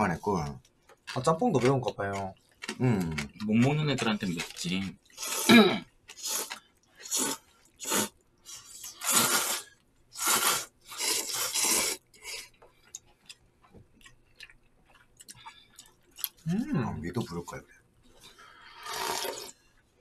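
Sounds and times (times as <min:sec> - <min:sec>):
faint chewing: 0:00.3 - 0:16.5
noodles being slurped: 0:04.2 - 0:12.5, 0:18.6 - 0:19.7.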